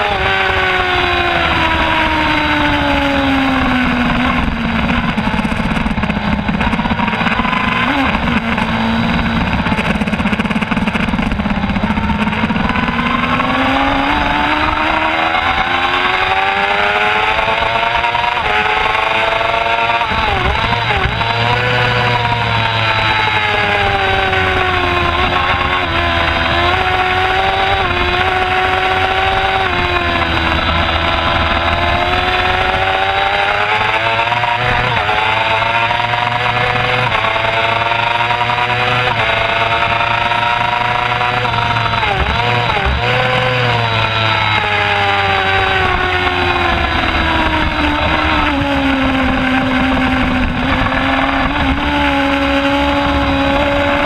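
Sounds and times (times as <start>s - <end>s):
motorcycle engine revving: 0.0s - 54.0s
wind rush: 0.0s - 54.0s.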